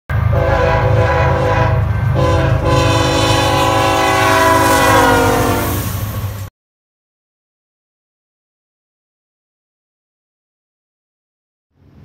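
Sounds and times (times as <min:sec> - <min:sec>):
locomotive air horn chord: 0:00.2 - 0:06.0.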